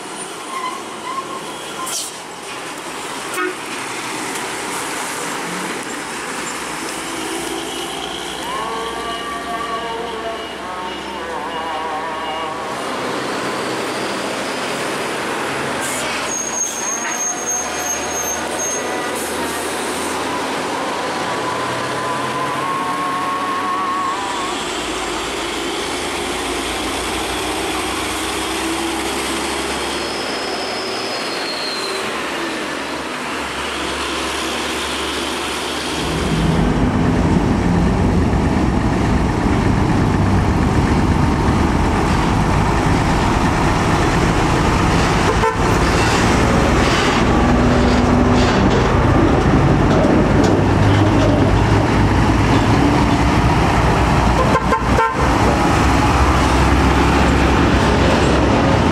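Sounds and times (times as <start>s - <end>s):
diesel trucks driving past: 2.1s - 58.9s
truck horn toots: 45.2s - 46.2s, 54.3s - 55.4s.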